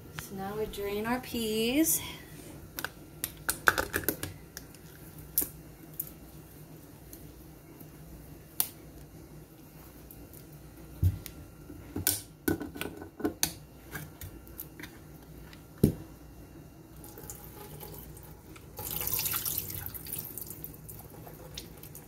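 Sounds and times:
liquid splashing into strainer: 0:18.8 - 0:22.0.

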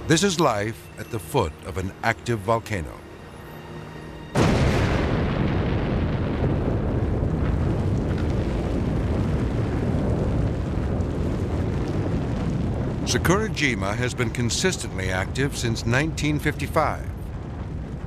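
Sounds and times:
low rumble of eruption: 0:04.4 - 0:18.0
volcano explosive blast: 0:04.4 - 0:18.0.

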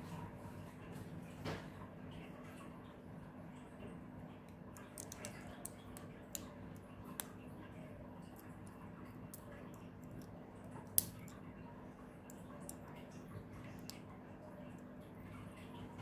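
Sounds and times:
plastic bricks clicking: 0:04.9 - 0:05.8.

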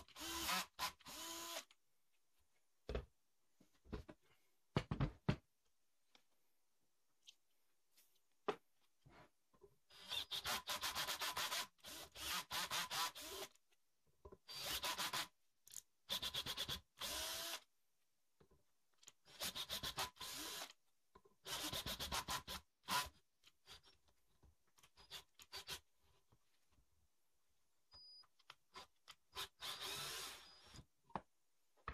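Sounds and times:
cordless drill bursts: 0:00.0 - 0:01.7, 0:09.9 - 0:13.5, 0:14.5 - 0:15.2, 0:16.3 - 0:17.6, 0:19.3 - 0:20.7, 0:29.3 - 0:30.8.

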